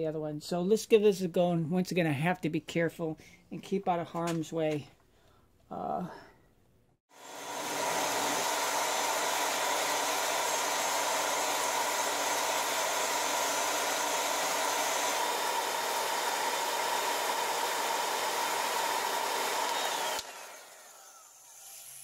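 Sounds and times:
bandsaw cutting metal: 0:07.1 - 0:22.0.

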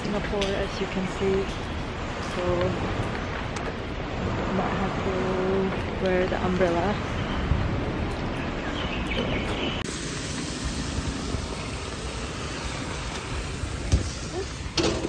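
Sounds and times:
traffic hiss on wet road: 0:09.8 - 0:15.0.

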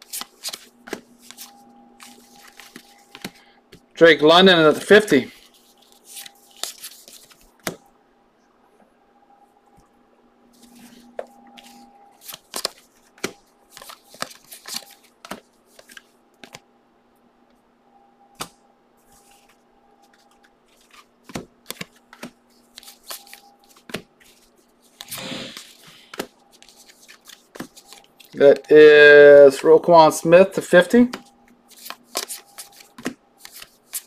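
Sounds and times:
cards sliding rustle: 0:00.0 - 0:03.8, 0:04.9 - 0:07.8, 0:10.5 - 0:16.6, 0:18.4 - 0:28.7, 0:31.1 - 0:34.0
faint steady hum: 0:00.0 - 0:34.0
cards clicking and snapping: 0:12.2 - 0:16.6, 0:20.1 - 0:28.7, 0:31.1 - 0:34.0.

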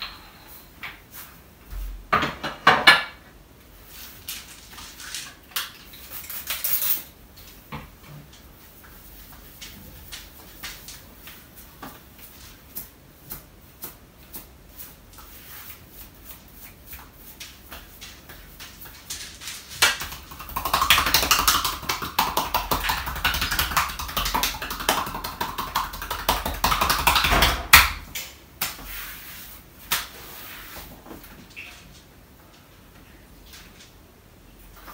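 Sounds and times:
hands tapping on skin: 0:19.8 - 0:28.0.

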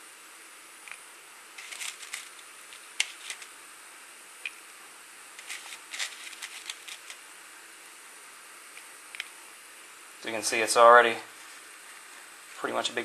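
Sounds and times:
gas burner hissing: 0:00.0 - 0:13.0
sharp clicks and crackles: 0:05.4 - 0:07.2, 0:08.8 - 0:09.4.

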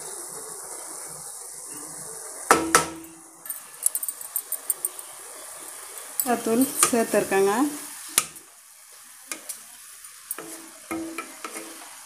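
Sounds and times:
faint steady sizzle: 0:00.0 - 0:12.0
wooden spatula knocking pan: 0:02.5 - 0:03.1, 0:10.4 - 0:11.8.

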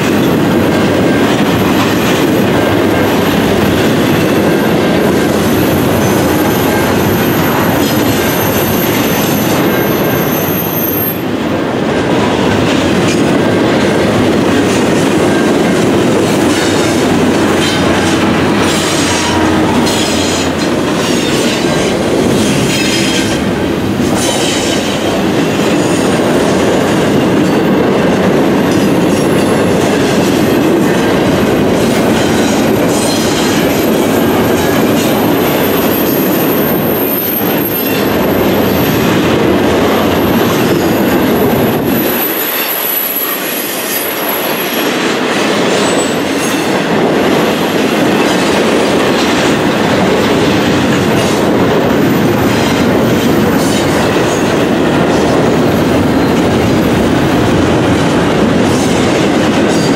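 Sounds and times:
train wheels rumbling on rail: 0:00.0 - 0:59.9
high-pitched wheel squeal: 0:05.3 - 0:11.3.

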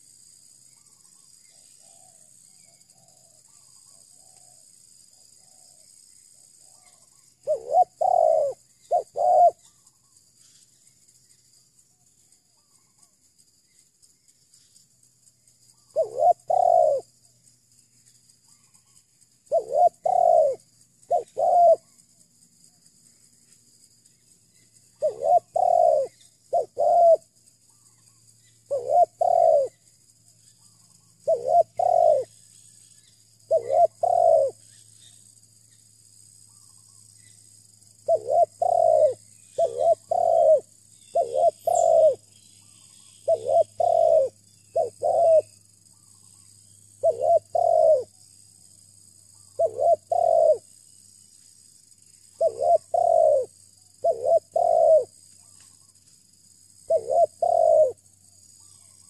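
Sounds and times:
dove cooing: 0:06.7 - 0:09.7, 0:15.9 - 0:17.1, 0:19.5 - 0:21.9, 0:25.0 - 0:27.3, 0:28.7 - 0:29.8, 0:31.2 - 0:32.3, 0:33.5 - 0:34.6, 0:38.0 - 0:42.3, 0:43.2 - 0:46.1, 0:47.0 - 0:48.1, 0:49.3 - 0:50.7, 0:52.4 - 0:55.6, 0:56.9 - 0:58.0.

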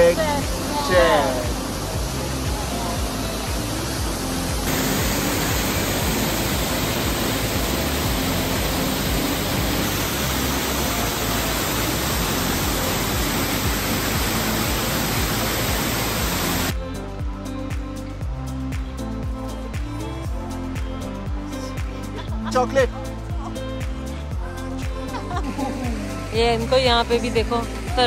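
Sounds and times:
waterfall rushing: 0:00.0 - 0:16.8.

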